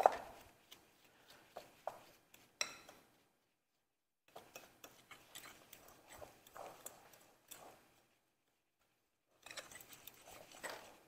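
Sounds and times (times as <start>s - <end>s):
fork scraping a glass bowl: 4.3s - 7.8s, 9.4s - 11.0s.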